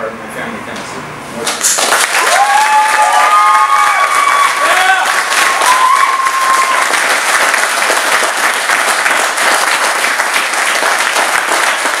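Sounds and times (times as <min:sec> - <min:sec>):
audience applauding: 0:01.5 - 0:12.0
high held call from crowd: 0:02.2 - 0:07.0.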